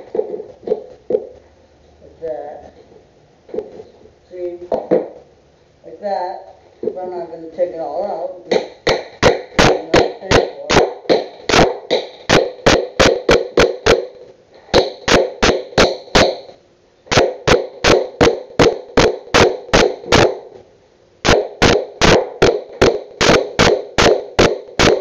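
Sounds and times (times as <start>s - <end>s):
hammer driving nails into wood: 8.5s - 16.5s, 21.3s - 25.0s.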